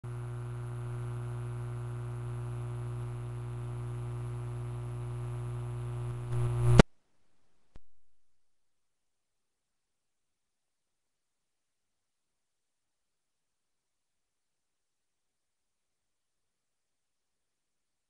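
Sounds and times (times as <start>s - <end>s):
low hum with hiss: 0.1s - 6.9s.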